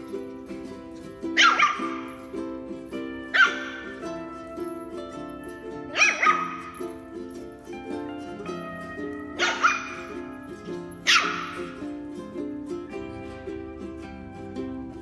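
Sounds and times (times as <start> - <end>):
puppies yapping: 0.0 - 12.1
background music: 0.0 - 15.0.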